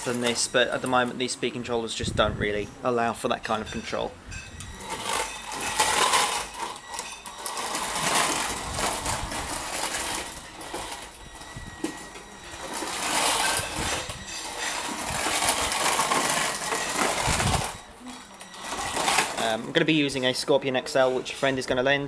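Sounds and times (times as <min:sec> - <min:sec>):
robot motors whirring: 0:04.5 - 0:19.5.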